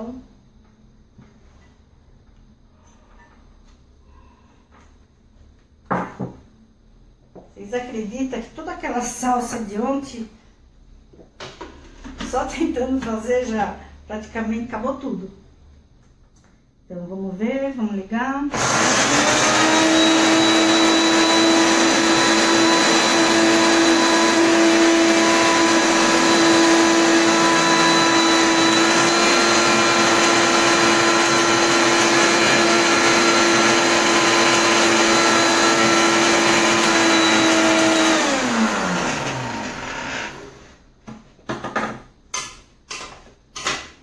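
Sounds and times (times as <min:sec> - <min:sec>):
blender running: 0:18.5 - 0:40.8.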